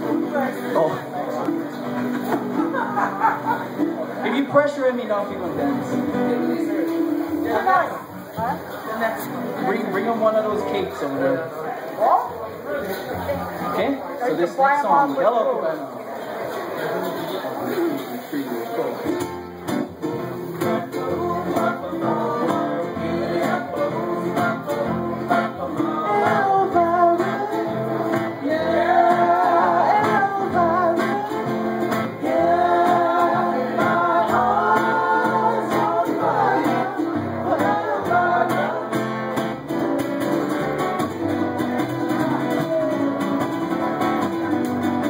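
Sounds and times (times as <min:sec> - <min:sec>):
strummed acoustic guitar: 0:00.0 - 0:14.2, 0:16.1 - 0:45.0
plucked upright bass: 0:19.0 - 0:45.0
person singing: 0:20.6 - 0:45.0.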